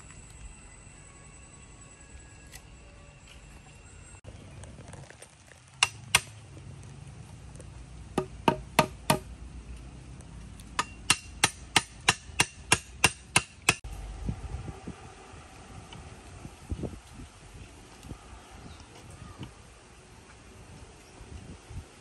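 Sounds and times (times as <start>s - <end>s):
sharp tool strikes: 5.8s - 6.4s, 10.8s - 13.8s.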